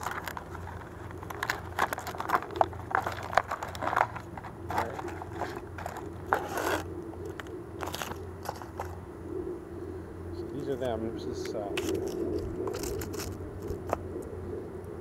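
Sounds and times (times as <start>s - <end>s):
cardboard rustle: 0.0s - 9.0s, 11.8s - 13.9s
cardboard scraping and crinkling: 0.0s - 9.0s, 11.8s - 14.0s.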